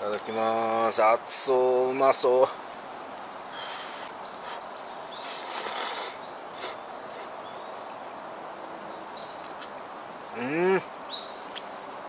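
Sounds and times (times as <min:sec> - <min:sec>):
person slurping noodles: 0:05.3 - 0:07.3.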